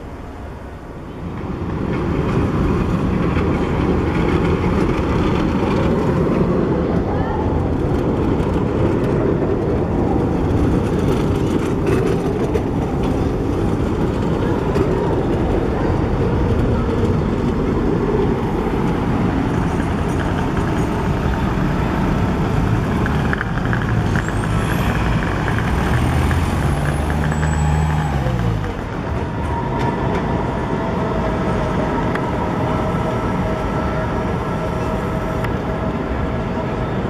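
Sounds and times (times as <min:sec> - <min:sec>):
trams rumbling on rails: 0:00.0 - 0:37.0.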